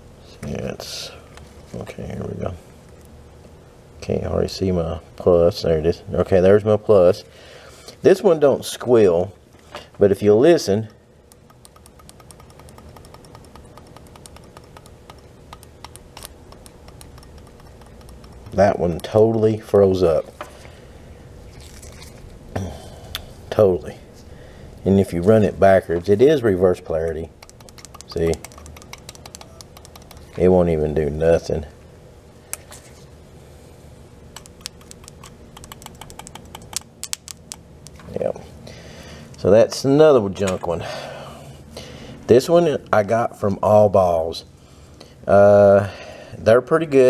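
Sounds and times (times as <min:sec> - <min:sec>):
faint steady hum: 0:00.0 - 0:47.0
faint ticking and clicking: 0:10.8 - 0:20.3, 0:26.9 - 0:30.4, 0:34.4 - 0:38.0.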